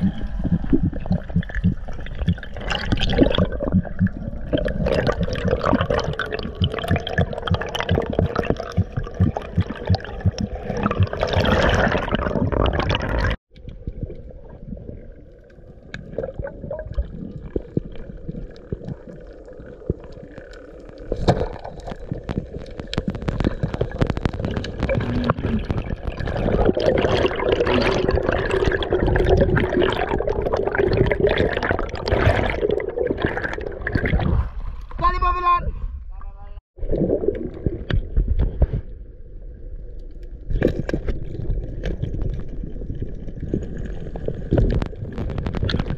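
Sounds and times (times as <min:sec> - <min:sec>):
muffled underwater rush: 0:00.0 - 0:36.2, 0:36.8 - 0:45.9
small clicks and crackles: 0:16.9 - 0:26.7, 0:39.9 - 0:45.9.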